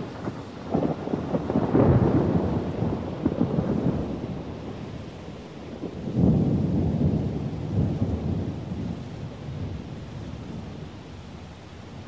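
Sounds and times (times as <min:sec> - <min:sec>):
thunder clap rumbling: 0:00.0 - 0:04.7, 0:05.8 - 0:09.9.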